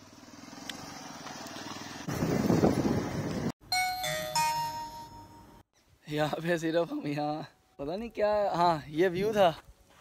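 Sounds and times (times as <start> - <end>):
motorcycle engine running: 0.0 - 3.5
chime sound effect: 3.7 - 5.6.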